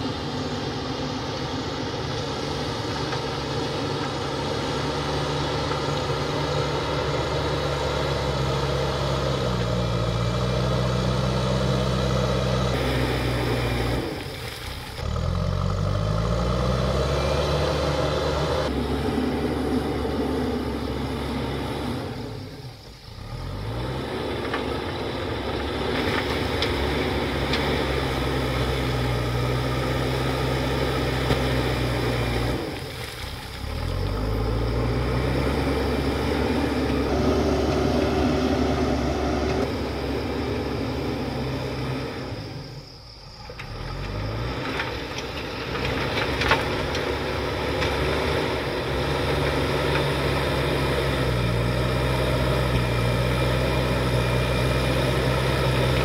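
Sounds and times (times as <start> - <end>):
backhoe diesel engine under load: 0.0 - 56.0
bucket pushing rock and soil: 31.0 - 35.5, 43.6 - 51.5.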